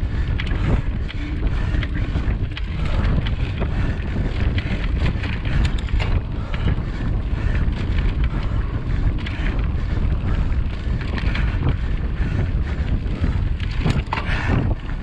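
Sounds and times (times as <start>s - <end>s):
bike clicks and rattles: 0.0s - 15.0s
wind buffeting microphone: 0.0s - 15.0s.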